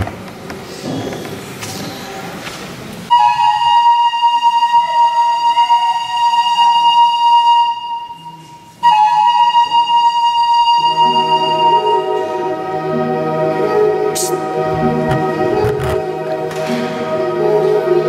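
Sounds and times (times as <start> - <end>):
pan flute held high note: 3.1 - 12.6, 13.6 - 14.6.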